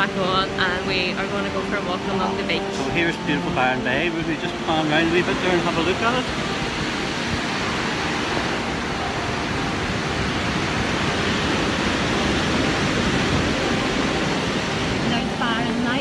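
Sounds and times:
ocean surf breaking: 0.0 - 16.0
wind buffeting microphone: 0.0 - 16.0.

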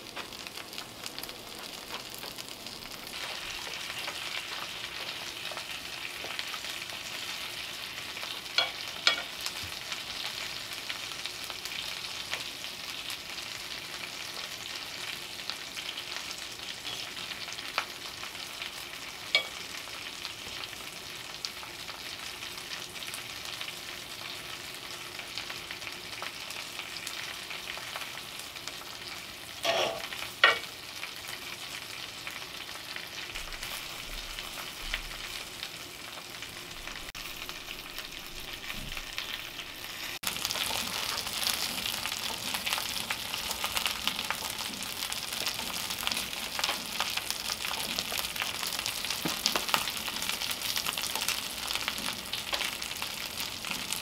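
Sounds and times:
fish sizzling in a skillet: 0.0 - 54.0
pans knocking: 8.6 - 9.3, 29.6 - 30.6.

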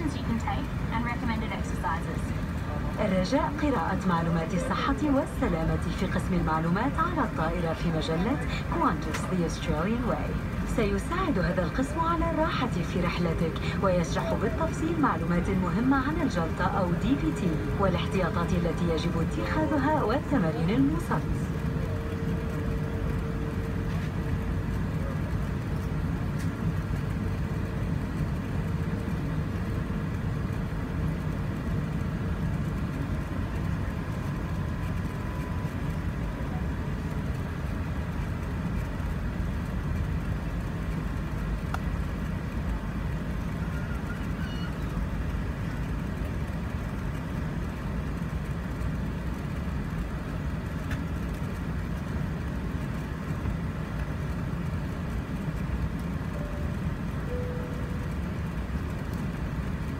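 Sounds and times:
jet engines rumbling in cabin: 0.0 - 59.9.

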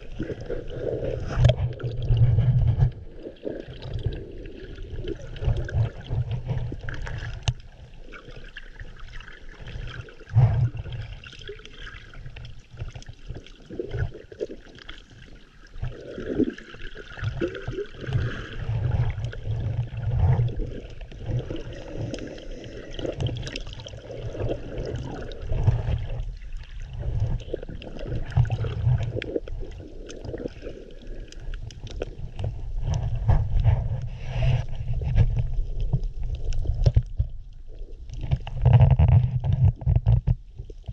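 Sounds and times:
water sloshing underwater: 0.0 - 40.9
small clicks and knocks: 38.1 - 40.9.

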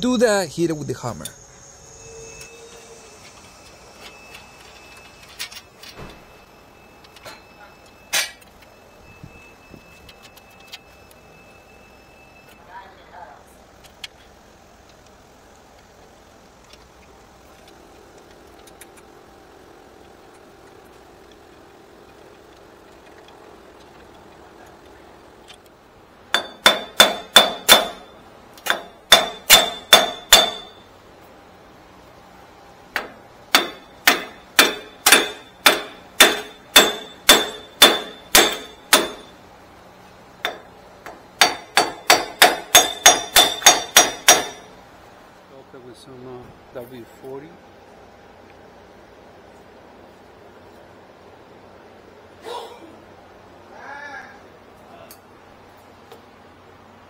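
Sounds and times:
hammer striking metal: 26.3 - 30.8, 33.0 - 39.4, 40.4 - 44.7.

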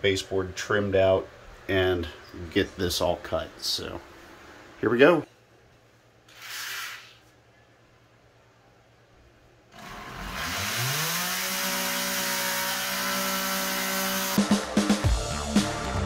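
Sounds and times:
oscillating multi-tool motor: 9.8 - 14.4.

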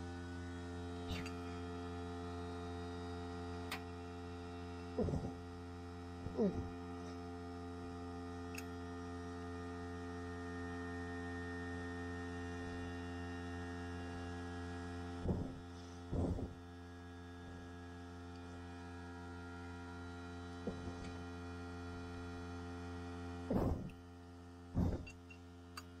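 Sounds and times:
electrical mains hum: 0.0 - 26.0.

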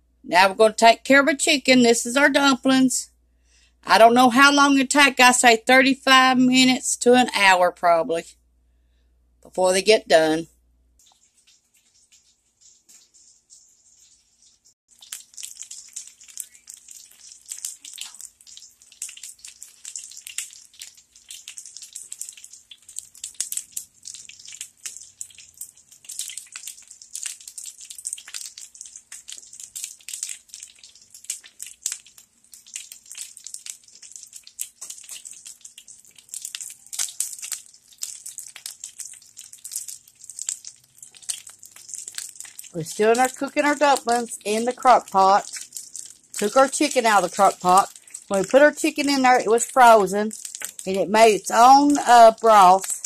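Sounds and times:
chicken sizzling in oil: 11.1 - 53.0.

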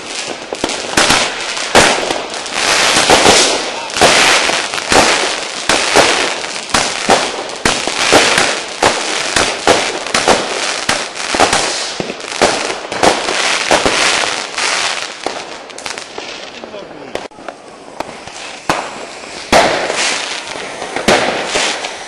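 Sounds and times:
firecracker bangs: 0.0 - 14.5, 17.1 - 22.0
hiss of explosions: 16.7 - 22.0.

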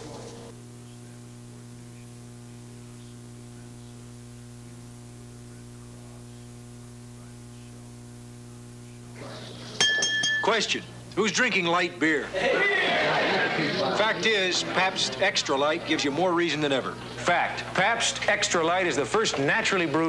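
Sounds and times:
low electrical mains hum: 0.0 - 20.0
glassy clink: 9.7 - 10.8.

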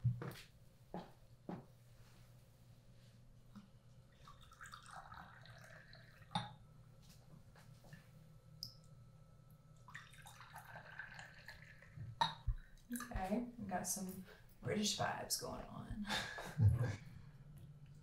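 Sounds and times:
tea pouring into cups: 3.5 - 6.8, 9.7 - 13.1.

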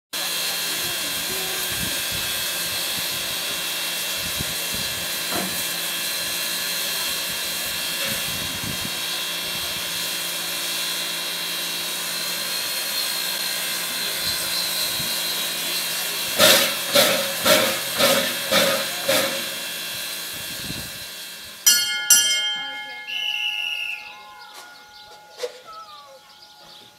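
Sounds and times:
steam hissing: 0.2 - 21.6.

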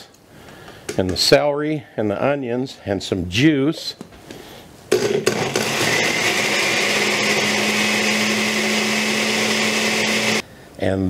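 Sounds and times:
blender motor running: 5.1 - 10.4.

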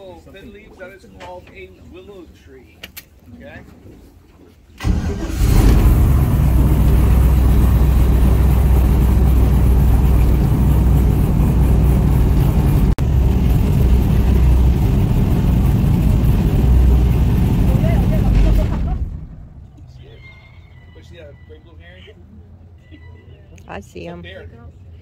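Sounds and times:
airboat engine and propeller: 5.3 - 19.6.

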